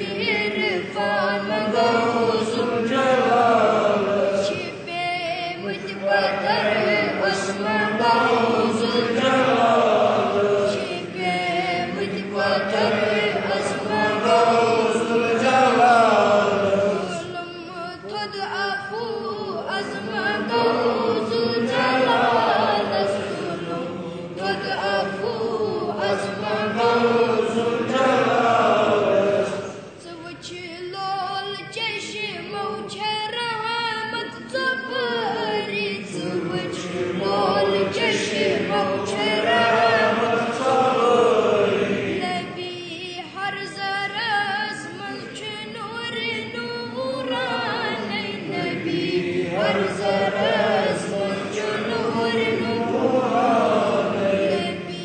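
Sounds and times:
child and group singing unaccompanied: 0.0 - 55.0.

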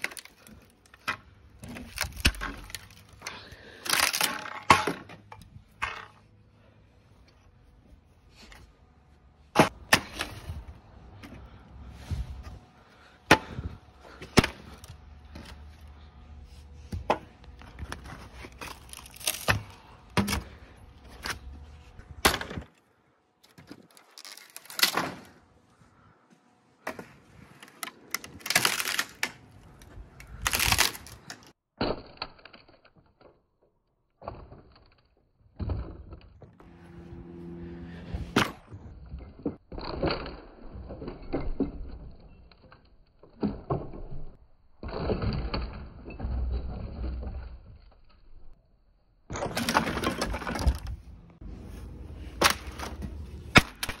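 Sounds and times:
wood cracking and splintering: 0.0 - 5.1, 17.8 - 20.6, 23.4 - 25.3, 27.8 - 33.3.

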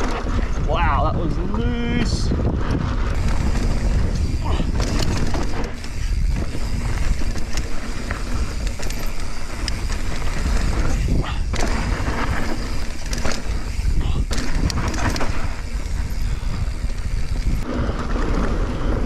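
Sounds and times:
bike knocks and rattles: 0.0 - 19.0
wind buffeting microphone: 0.0 - 19.0
tyres hissing on dirt: 3.2 - 14.3.

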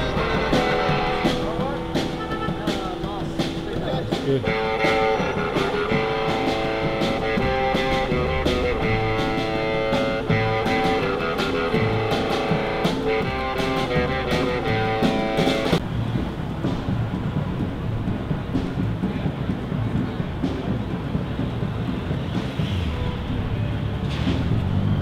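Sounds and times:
rock music with guitar and drums: 0.0 - 15.8
street traffic noise: 0.0 - 25.0.

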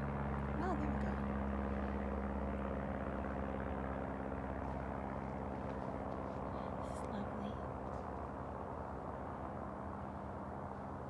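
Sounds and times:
low machine drone: 0.0 - 11.0.

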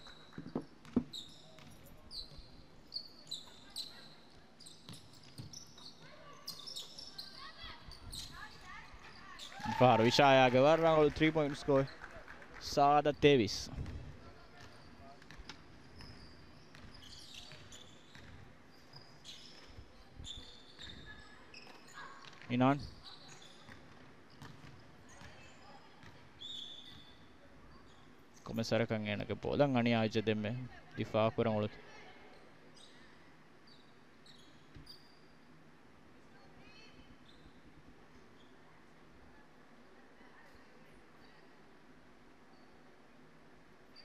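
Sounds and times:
shoes squeaking on court: 0.0 - 9.6, 13.8 - 28.6, 32.3 - 35.4, 36.7 - 38.7
ball bouncing thuds: 0.3 - 1.8
shoes squeaking on hardwood: 0.3 - 2.5
basketball bouncing: 0.5 - 1.8, 13.8 - 18.5, 23.7 - 25.4, 26.0 - 26.2.

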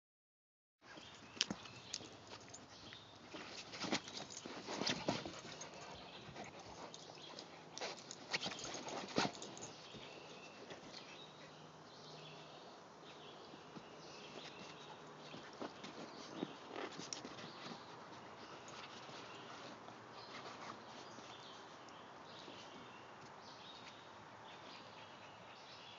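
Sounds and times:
dogs scuffling: 1.0 - 11.3, 13.5 - 21.8.

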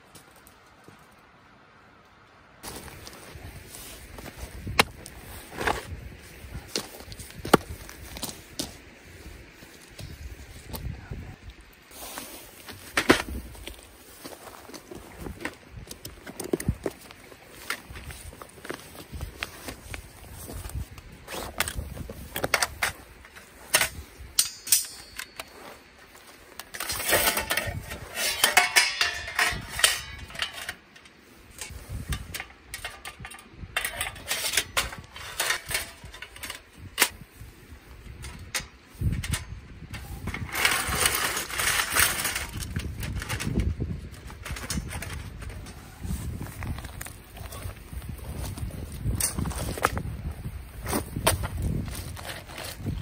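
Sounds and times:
metal plates clinking and scraping: 21.3 - 37.3, 38.2 - 50.0.

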